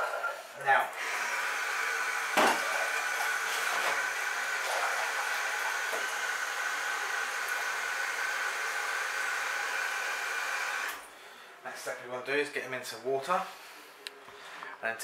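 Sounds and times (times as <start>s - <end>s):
tap water running with whine: 0.9s - 11.1s.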